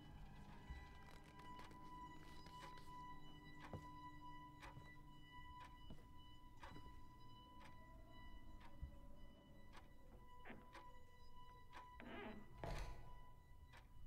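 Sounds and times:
faint clock ticking: 0:00.0 - 0:14.0.

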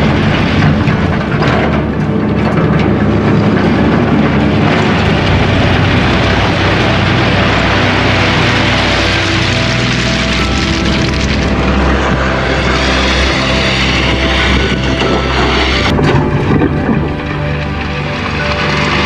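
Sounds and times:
excavator diesel engine running: 0:00.0 - 0:19.0.

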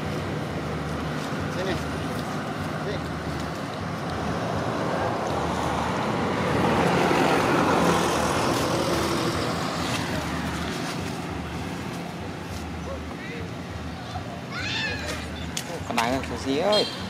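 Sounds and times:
motor vehicle passing by: 0:00.0 - 0:13.1.

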